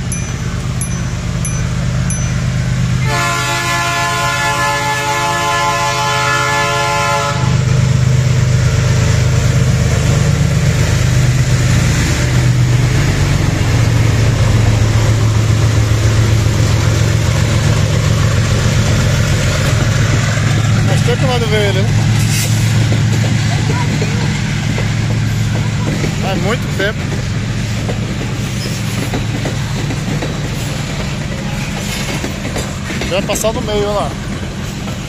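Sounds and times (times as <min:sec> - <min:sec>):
train rolling: 0:00.0 - 0:35.0
locomotive horn blast: 0:03.0 - 0:07.7.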